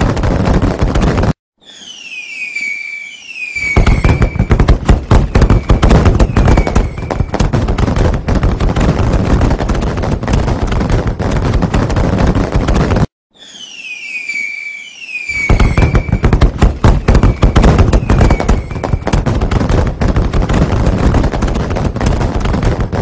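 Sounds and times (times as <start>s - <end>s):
rapid crackle of firework bangs: 0.0s - 13.1s, 13.7s - 23.0s
firework whistles falling in pitch: 1.6s - 4.7s, 5.3s - 7.4s, 13.3s - 19.2s.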